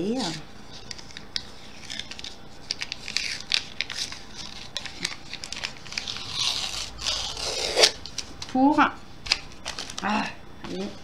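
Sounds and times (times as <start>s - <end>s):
cardboard packaging crinkling: 1.8s - 8.4s, 9.3s - 10.0s.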